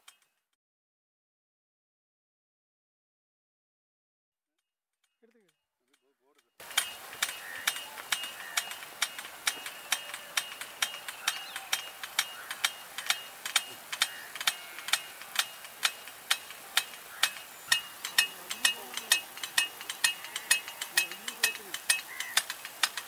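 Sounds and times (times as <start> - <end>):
sprinkler ticking: 5.2 - 23.0
water jet hiss: 6.6 - 23.0.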